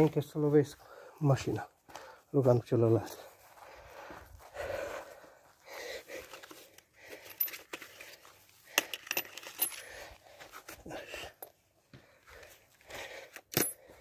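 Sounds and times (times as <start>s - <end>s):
metallic clinks and jingles: 7.1s - 10.1s, 13.5s - 14.0s.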